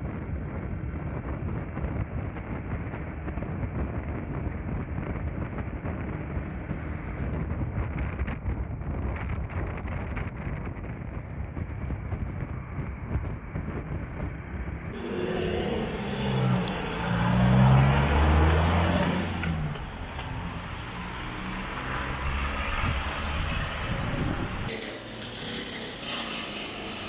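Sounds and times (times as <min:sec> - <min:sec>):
steady rumble: 0:00.0 - 0:24.7
vehicle engine passing: 0:15.0 - 0:26.0.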